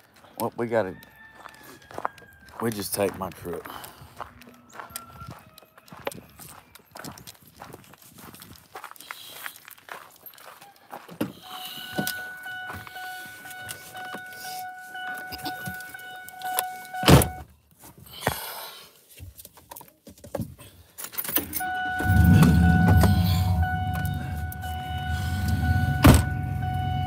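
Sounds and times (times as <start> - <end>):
car door warning tone: 11.4 - 17.4, 21.4 - 27.0
car door shutting: 11.5 - 17.4, 21.4 - 27.0
keys jangling: 21.0 - 21.7
engine starting and rumbling: 21.3 - 27.0.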